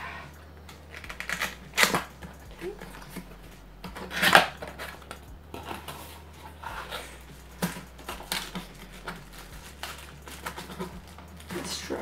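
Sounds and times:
cardboard scraping and rustling: 0:00.0 - 0:12.0.

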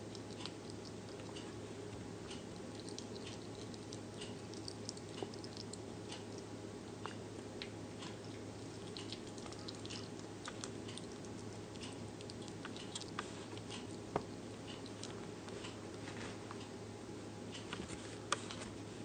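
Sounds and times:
hamster chewing clicks: 0:00.0 - 0:01.6, 0:02.2 - 0:15.8
steady low hum: 0:00.0 - 0:19.0.

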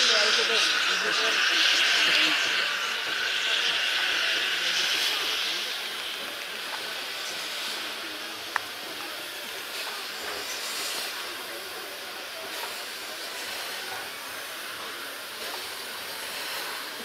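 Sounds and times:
steam hissing from locomotive: 0:00.0 - 0:17.0.

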